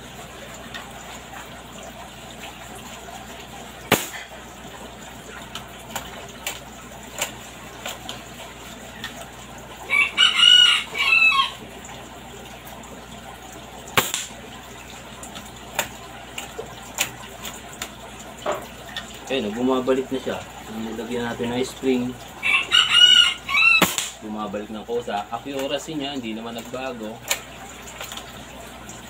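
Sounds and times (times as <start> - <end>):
rooster crowing: 9.9 - 11.6, 22.4 - 24.0.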